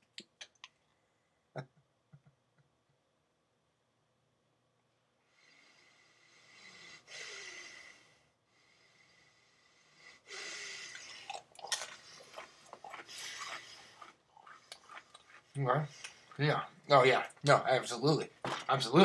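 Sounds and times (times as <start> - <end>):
man breathing out heavily: 5.6 - 11.3
fortune cookie crunching: 10.9 - 16.6.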